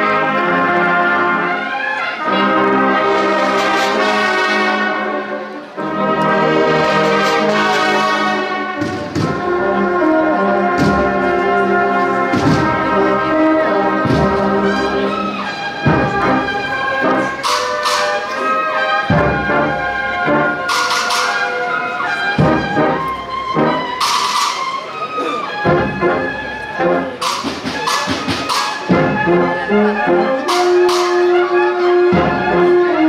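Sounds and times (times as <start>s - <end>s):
cornets playing march: 0.0s - 33.0s
drum strokes: 8.7s - 33.0s.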